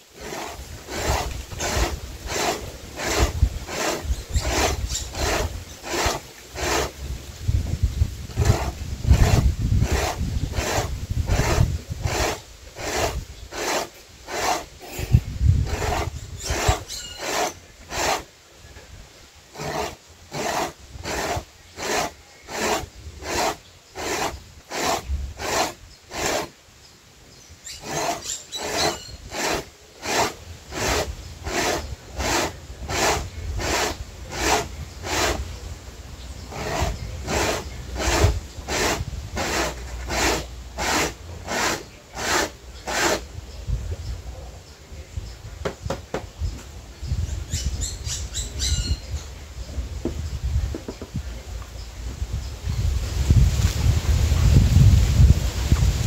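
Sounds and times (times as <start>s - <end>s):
corn rasping on metal grater: 0.0s - 7.1s, 8.3s - 18.3s, 19.5s - 26.5s, 27.7s - 35.6s, 36.5s - 43.3s.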